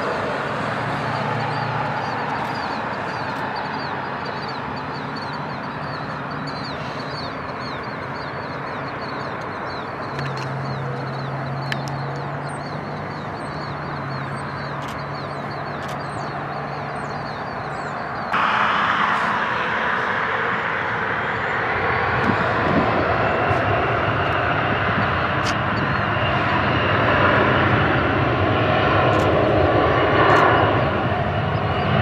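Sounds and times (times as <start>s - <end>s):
distant jet engine rush: 0.0s - 32.0s
bird chirping: 1.1s - 18.4s.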